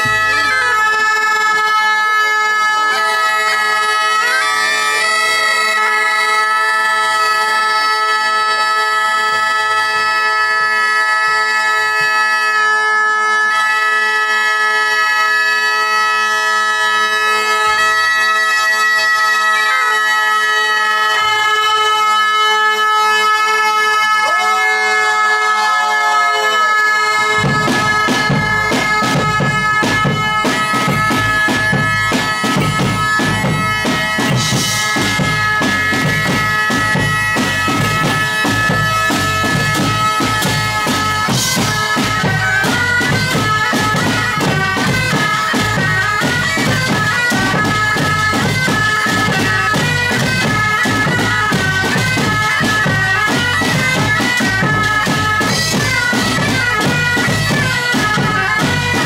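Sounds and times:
bagpipes playing a melody: 0.0 - 59.0
drum kit beat: 27.1 - 59.0.

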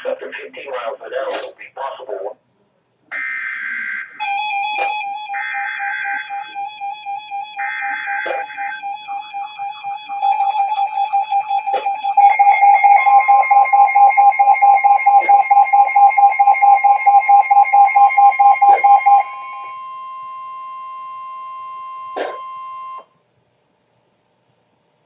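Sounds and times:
rapid electronic beeping: 4.2 - 19.8
steady alert tone: 4.2 - 19.9.

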